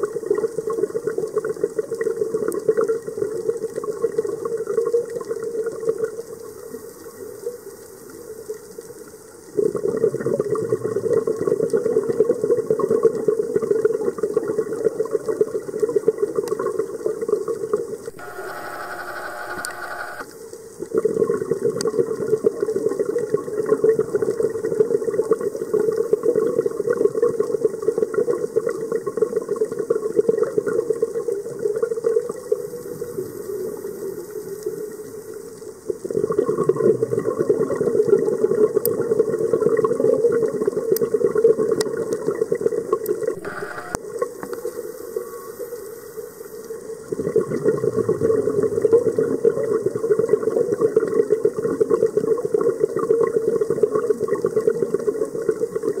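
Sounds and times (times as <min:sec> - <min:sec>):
underwater air bubbling: 0:46.8 - 0:56.0.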